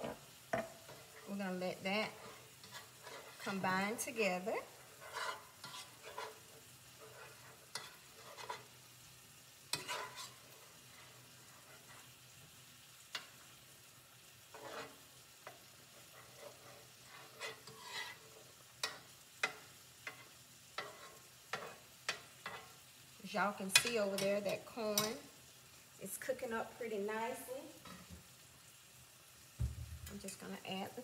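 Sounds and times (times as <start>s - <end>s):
butter and garlic sizzling in pan: 0.0s - 31.0s
utensil scraping and tapping pan: 2.1s - 3.7s, 5.0s - 8.7s, 9.7s - 10.5s, 14.5s - 22.8s.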